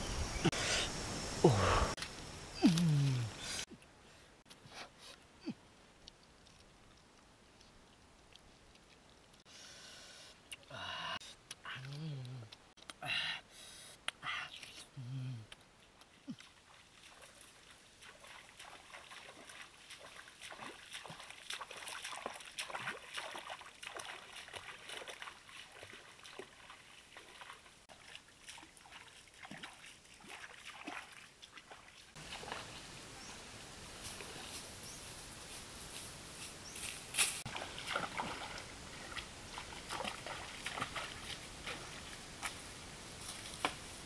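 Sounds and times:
steady hiss: 0.0 - 5.3, 32.2 - 37.5, 38.5 - 44.0
wading splashes in water: 16.3 - 33.0, 37.4 - 42.7.

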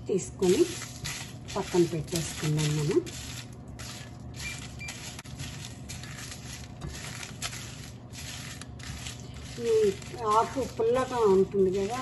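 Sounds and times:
wooden spatula scraping a pan: 5.1 - 12.0.

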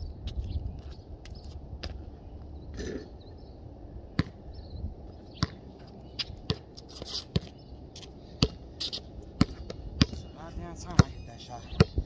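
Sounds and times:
basketball bouncing on concrete: 4.2 - 4.4, 5.4 - 7.6, 8.4 - 11.2.

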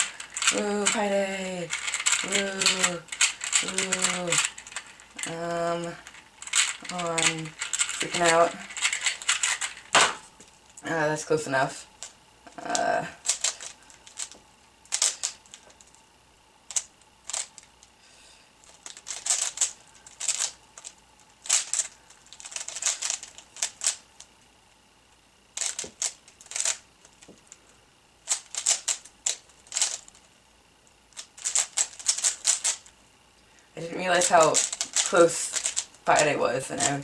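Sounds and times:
plastic puzzle cube clacking: 0.0 - 10.2, 12.8 - 15.8, 16.7 - 17.7, 18.7 - 24.0, 25.6 - 27.4, 28.3 - 30.2, 31.2 - 32.9, 34.2 - 37.0.

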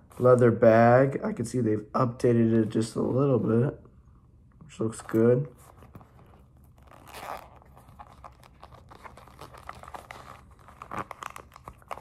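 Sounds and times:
leather pouch rustling and crinkling: 5.6 - 12.0.

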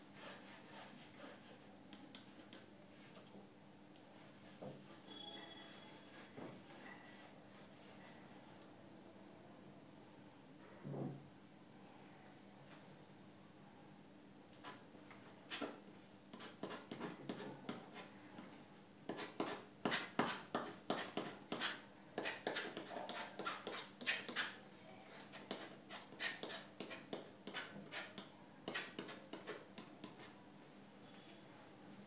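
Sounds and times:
palette knife scraping canvas: 19.1 - 24.6, 25.2 - 30.3.

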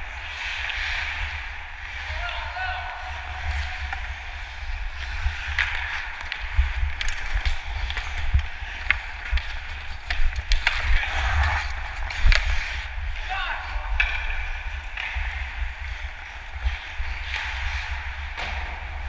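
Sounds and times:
skates scraping on ice: 0.0 - 19.0
hockey sticks and puck knocking: 3.4 - 15.8, 16.5 - 19.0.

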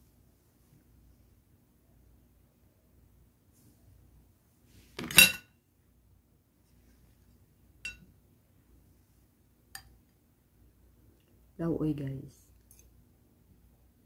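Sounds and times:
cutlery clinking against plate: 5.0 - 5.5.

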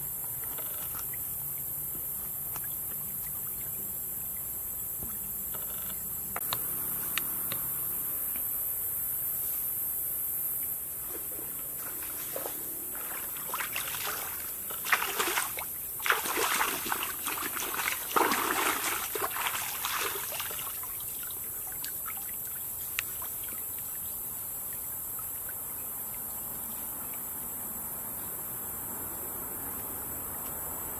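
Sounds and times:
water splashing in a stream: 11.2 - 27.2.

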